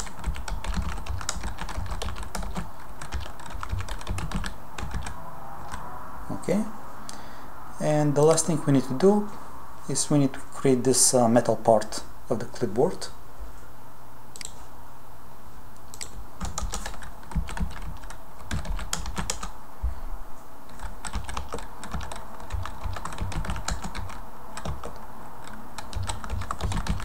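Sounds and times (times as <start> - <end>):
computer keyboard typing: 0.0 - 5.8, 15.9 - 19.5, 20.7 - 27.0.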